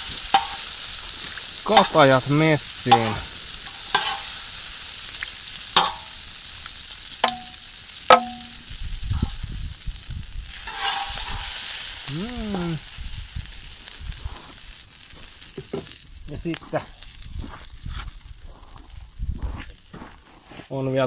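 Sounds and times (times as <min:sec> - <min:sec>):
meat sizzling in a pan: 0:00.0 - 0:20.2
utensil knocking on a pan: 0:05.8 - 0:06.1, 0:07.2 - 0:08.6.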